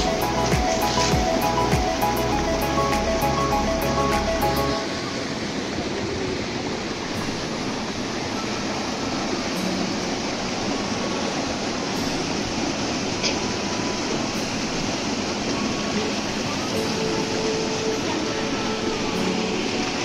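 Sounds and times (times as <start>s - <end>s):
background music: 0.0s - 4.9s, 13.8s - 20.0s
waterfall pouring over rocks: 0.0s - 20.0s.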